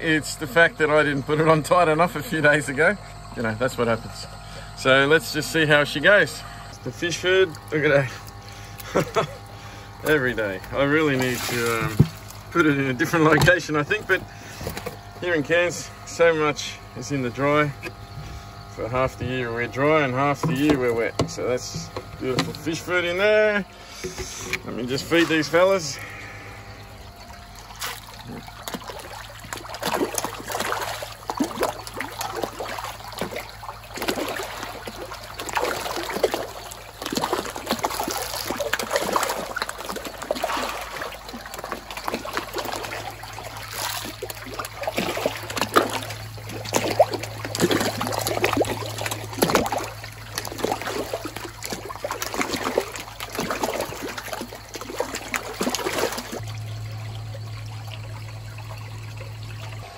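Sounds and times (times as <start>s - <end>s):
steady low hum: 0.0s - 59.9s
fish splashing at water surface: 7.3s - 15.7s, 20.4s - 59.9s.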